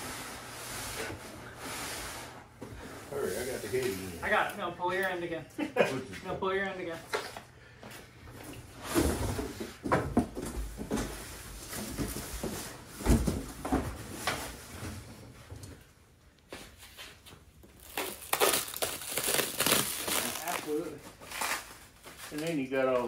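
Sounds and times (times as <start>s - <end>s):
boxes knocking and thudding: 8.8s - 15.0s.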